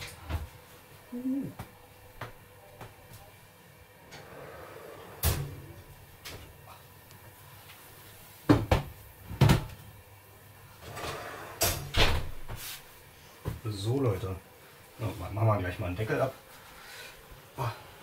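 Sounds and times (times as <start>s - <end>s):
oven door shutting: 4.1s - 5.8s, 10.8s - 12.5s.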